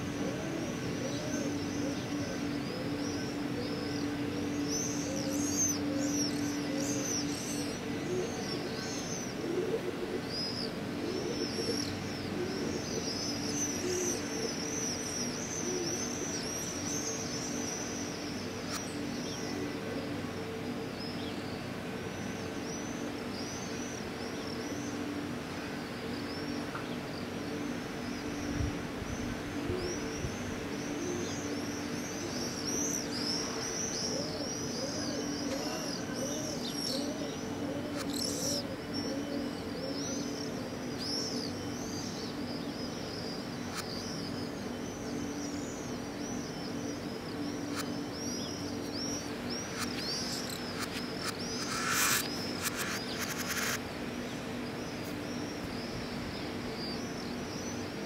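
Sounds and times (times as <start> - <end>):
small birds chirping: 0.0 - 19.6, 29.2 - 58.0
steady low hum: 0.0 - 58.0
dove cooing: 9.4 - 10.2, 11.0 - 13.0, 34.1 - 40.7.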